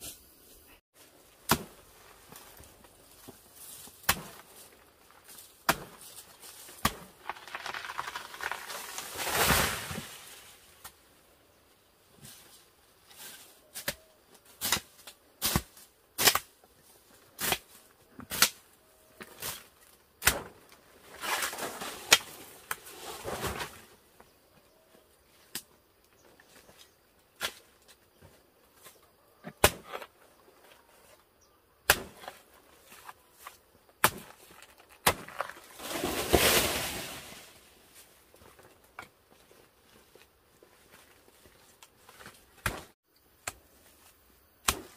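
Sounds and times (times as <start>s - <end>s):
rustling leaves: 0.0s - 11.4s, 19.2s - 24.2s, 32.0s - 43.0s
machete chopping plant trunk: 1.4s - 1.8s, 4.0s - 4.5s, 5.6s - 6.1s, 20.2s - 20.6s, 29.5s - 30.1s, 31.8s - 32.4s, 34.0s - 36.6s, 42.6s - 43.6s, 44.6s - 44.9s
plant stem falling: 6.8s - 9.3s.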